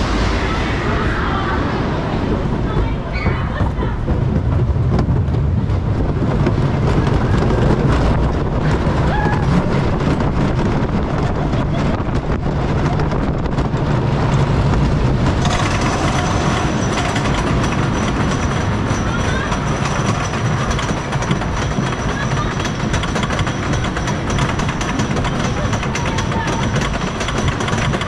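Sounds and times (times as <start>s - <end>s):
high whine: 0.0s - 5.0s
roller coaster rumbling on track: 0.0s - 28.0s.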